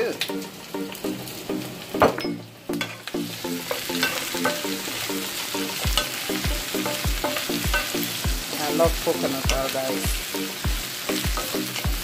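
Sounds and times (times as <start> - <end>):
background music with steady beat: 0.0 - 12.0
vegetables sizzling in frying pan: 0.0 - 12.0
spoon scraping a pan: 2.8 - 8.3
low thumping beat: 5.8 - 12.0.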